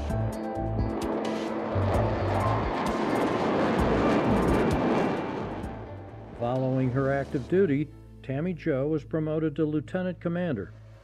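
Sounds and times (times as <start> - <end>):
jet aircraft engine rush: 0.0 - 7.6.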